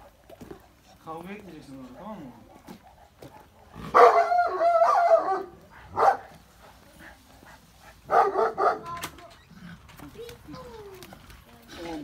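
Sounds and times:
dog barking: 0:03.2 - 0:06.4, 0:08.0 - 0:09.0
dog wavering cry: 0:03.9 - 0:05.5.

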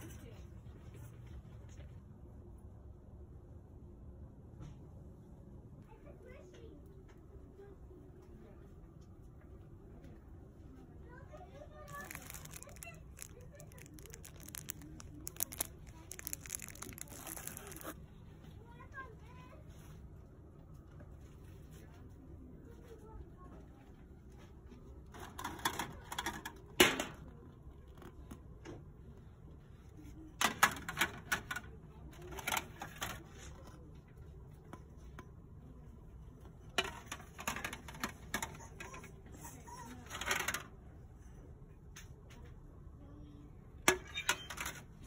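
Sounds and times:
small hard objects clicking: 0:11.9 - 0:18.0.

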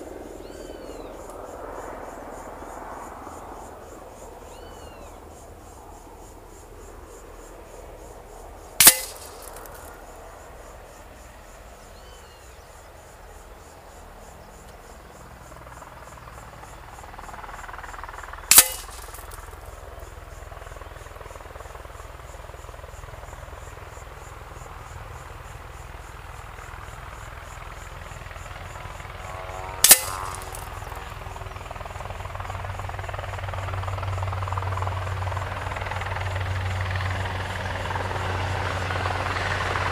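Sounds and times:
pellets striking target: 0:08.8 - 0:09.9, 0:18.5 - 0:19.6, 0:29.8 - 0:31.0.

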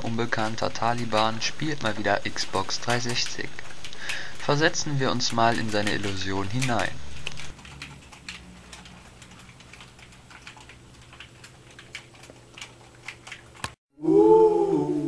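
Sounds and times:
wavering tone: 0:14.0 - 0:15.0.

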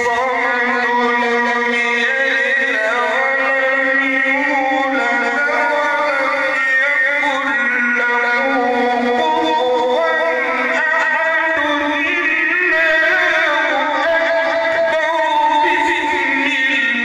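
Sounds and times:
man reciting in melodic style: 0:00.0 - 0:17.0.

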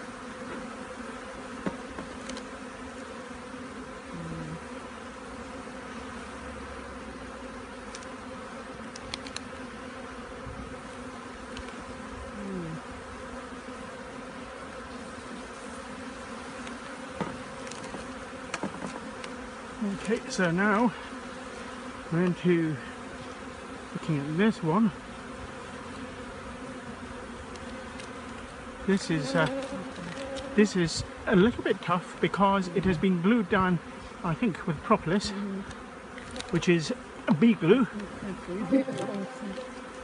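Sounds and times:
bees buzzing in a hive: 0:00.0 - 0:40.0
single bee buzzing past: 0:00.0 - 0:40.0.

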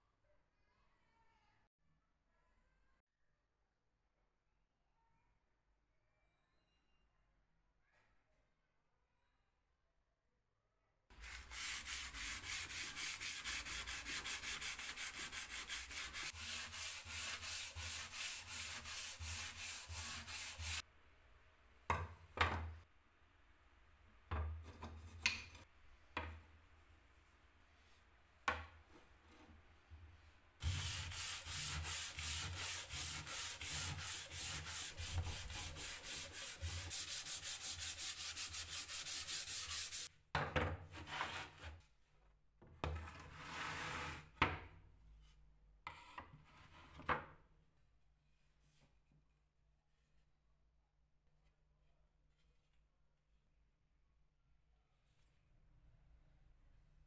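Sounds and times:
sandpaper rubbing on wood: 0:11.1 - 0:20.8, 0:30.6 - 0:40.1.

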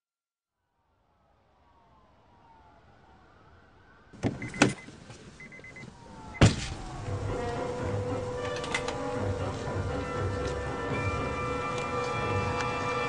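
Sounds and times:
car door slamming: 0:04.2 - 0:05.0, 0:06.4 - 0:07.6.

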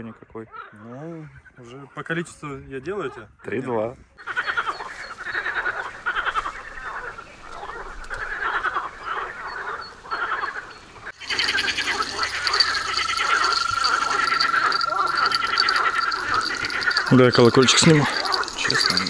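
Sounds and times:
frogs croaking in chorus: 0:04.2 - 0:19.0.

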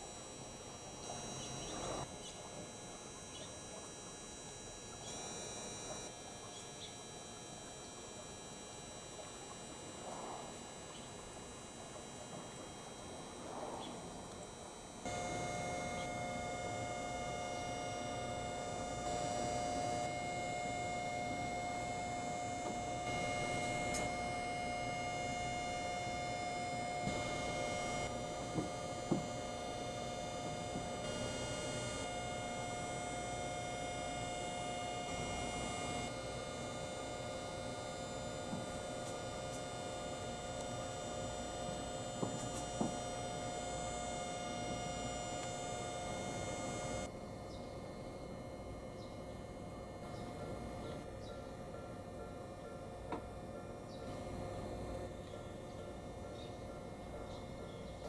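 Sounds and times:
electrical hum: 0:00.0 - 0:58.0
high whine tones: 0:00.0 - 0:58.0.

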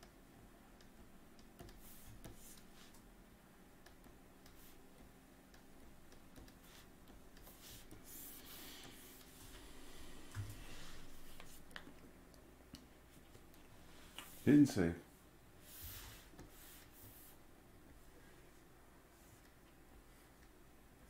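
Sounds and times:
low room hum: 0:00.0 - 0:21.0
stylus scratching on drawing tablet: 0:01.7 - 0:03.0, 0:06.6 - 0:09.6, 0:15.6 - 0:17.4.

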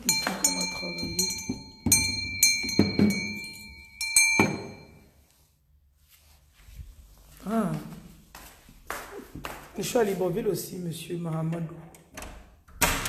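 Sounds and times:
ringing metal object knocked: 0:00.0 - 0:05.0.

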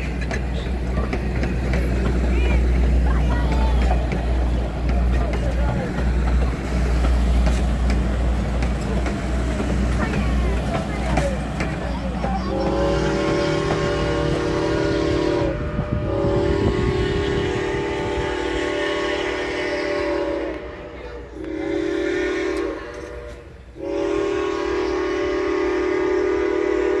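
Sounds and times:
train rumble: 0:00.0 - 0:27.0
steam locomotive whistle blasts: 0:12.6 - 0:27.0.

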